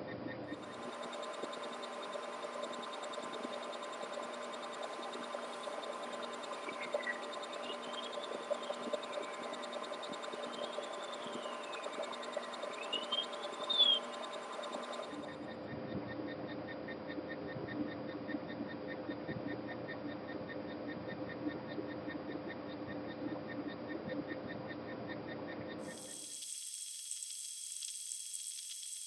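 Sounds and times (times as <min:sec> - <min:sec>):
faint whistle-like tones: 0:00.7 - 0:15.2
steady hiss and hum: 0:25.8 - 0:29.0.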